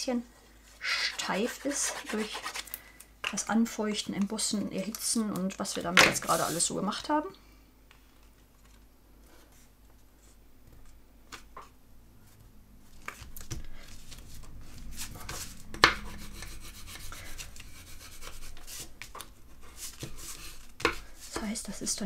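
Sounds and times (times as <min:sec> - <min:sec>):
paper rubbing: 0:00.9 - 0:02.6, 0:06.2 - 0:06.7, 0:12.2 - 0:21.9.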